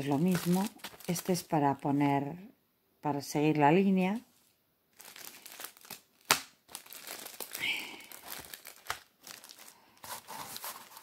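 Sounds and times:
plastic packaging crinkling: 0.0s - 2.0s, 4.9s - 11.0s.

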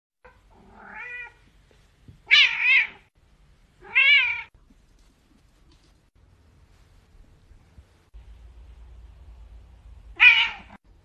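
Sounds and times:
cat meowing: 0.2s - 1.4s, 2.2s - 3.1s, 3.8s - 4.5s, 10.1s - 10.8s.

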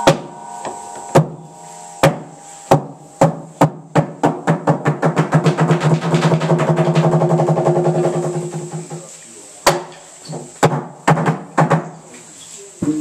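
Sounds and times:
wooden drum knocks: 2.0s - 9.1s.

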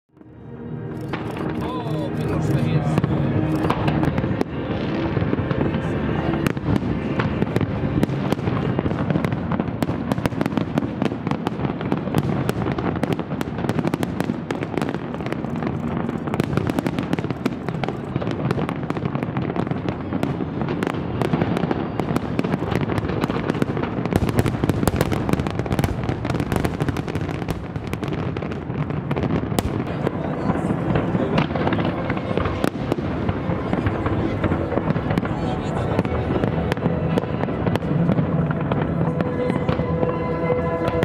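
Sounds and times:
fireworks bangs and crackling: 0.8s - 41.0s.

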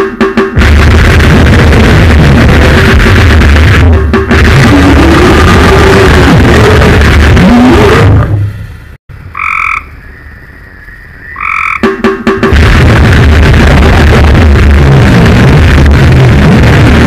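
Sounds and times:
harsh noise music: 0.0s - 8.6s, 11.5s - 17.0s
frog croaking: 9.2s - 12.0s.

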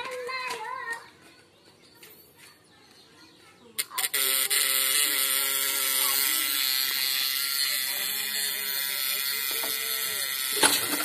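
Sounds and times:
electric circuit buzzing with hiss: 3.8s - 11.0s.

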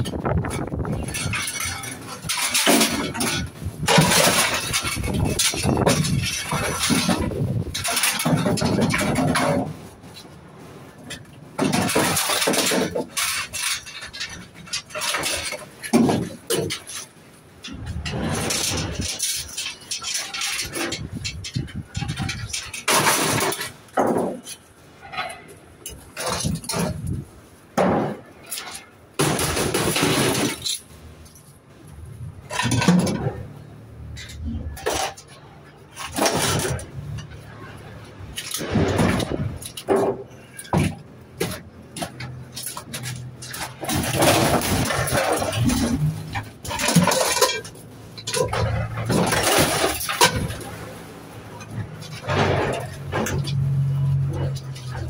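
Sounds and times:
scrap metal clattering: 0.0s - 55.0s.

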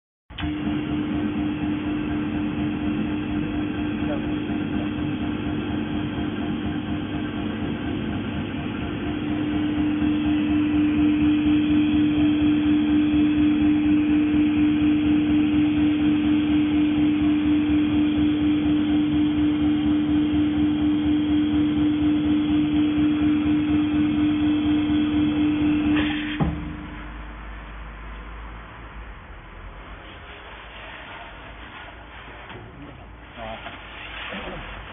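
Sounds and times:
welding machine pulsing hum: 0.4s - 27.5s.

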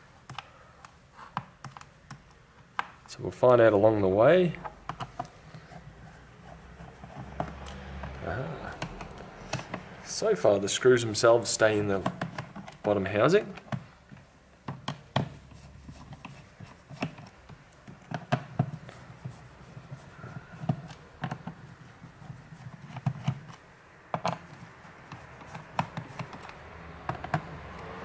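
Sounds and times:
screwdriver clicking and tapping on case: 4.6s - 5.4s, 7.0s - 9.9s, 12.0s - 15.4s, 16.1s - 21.9s, 22.6s - 27.9s.

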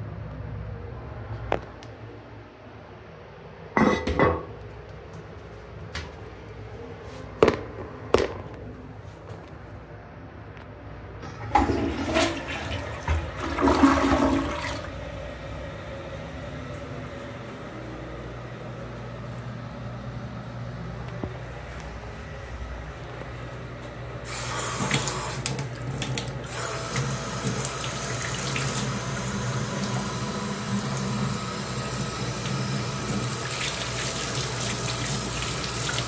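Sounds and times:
sharp knocks and clatters: 7.4s - 8.6s
water running: 11.2s - 18.1s, 24.2s - 36.0s
toilet flushing: 11.2s - 18.5s, 24.2s - 36.0s.

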